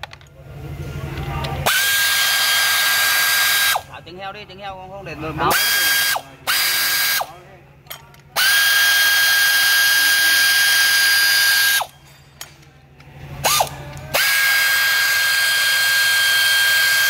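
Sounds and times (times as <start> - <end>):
power ratchet wrench whining: 1.5 - 3.9, 5.4 - 7.4, 8.2 - 12.0, 13.4 - 17.0.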